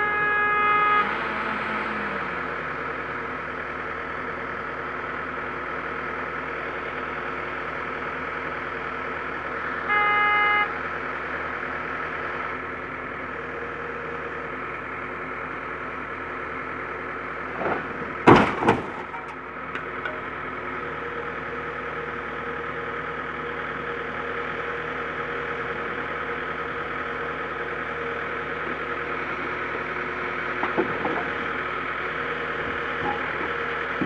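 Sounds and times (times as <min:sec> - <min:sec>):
short horn-like beep: 0:00.0 - 0:01.2, 0:09.9 - 0:10.8
crane truck engine running: 0:00.0 - 0:34.0.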